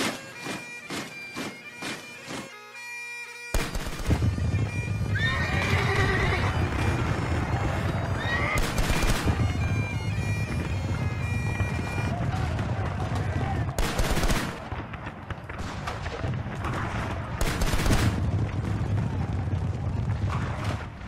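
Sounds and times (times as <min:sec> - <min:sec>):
horse hooves: 0:00.0 - 0:21.0
horses neighing: 0:04.6 - 0:11.1
regular thuds: 0:06.6 - 0:13.9.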